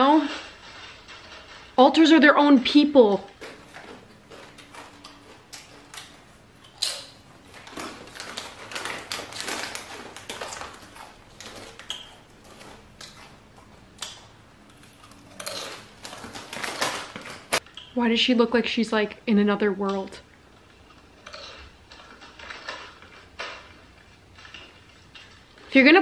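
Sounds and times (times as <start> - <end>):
chip bag crinkling: 0.0 - 17.8, 20.6 - 26.0
crunching of chips being eaten: 3.3 - 17.9, 20.5 - 25.7.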